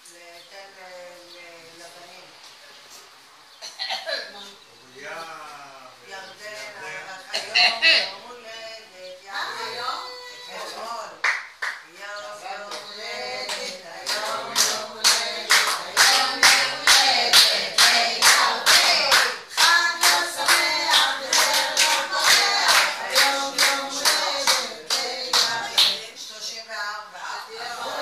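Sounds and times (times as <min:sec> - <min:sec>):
people clapping along: 0:11.2 - 0:11.9, 0:12.6 - 0:26.1
group singing: 0:11.9 - 0:28.0.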